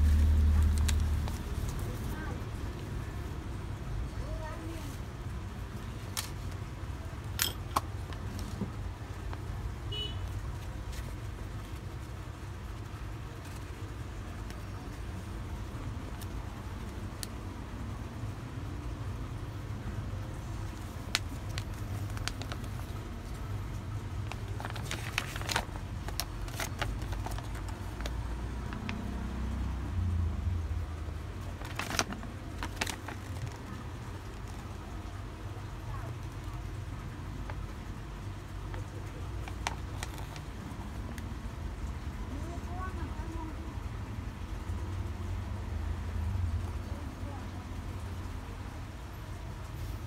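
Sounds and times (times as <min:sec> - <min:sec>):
packaging rustling: 0:20.6 - 0:29.0, 0:31.4 - 0:34.8, 0:39.4 - 0:40.6.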